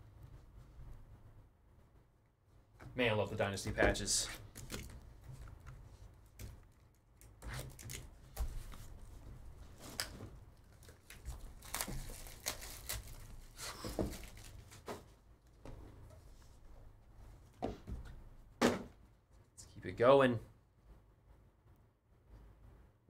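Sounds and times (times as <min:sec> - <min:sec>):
foil wrapper tearing and crinkling: 0:10.7 - 0:14.7.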